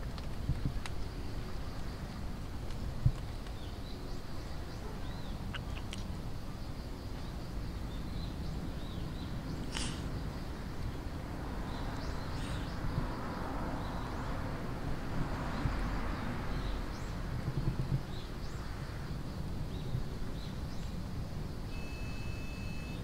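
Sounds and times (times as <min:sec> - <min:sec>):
distant traffic noise: 0:00.0 - 0:23.0
faint bird chirps: 0:03.5 - 0:06.6, 0:11.7 - 0:12.9, 0:21.7 - 0:23.0.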